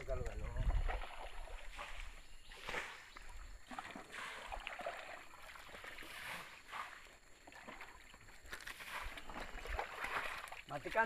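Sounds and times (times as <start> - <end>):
muddy water sloshing and trickling: 0.0 - 11.0.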